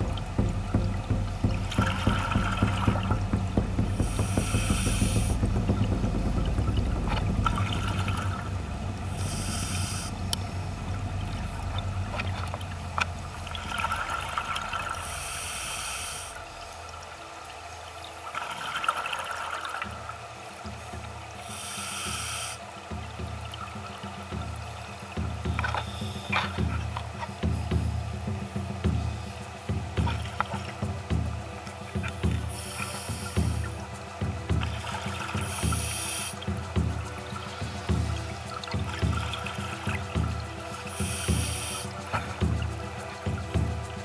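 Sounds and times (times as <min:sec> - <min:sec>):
exhaled bubbles underwater: 0:00.0 - 0:15.7
hissing regulator inhalation: 0:01.3 - 0:22.9, 0:25.5 - 0:44.0.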